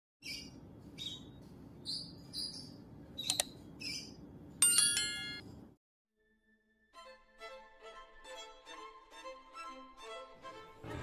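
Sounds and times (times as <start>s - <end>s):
parakeet chirping: 0.2s - 4.2s.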